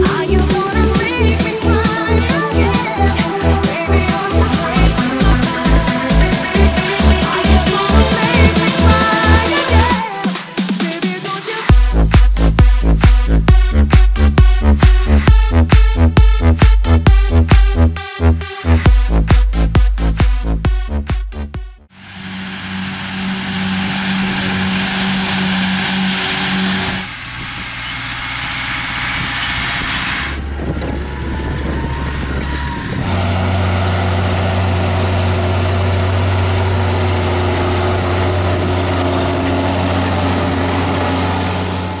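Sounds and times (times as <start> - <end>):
round baler low hum: 0.0 - 9.9, 22.0 - 42.0
farm machinery engines running: 0.0 - 10.2, 22.0 - 42.0.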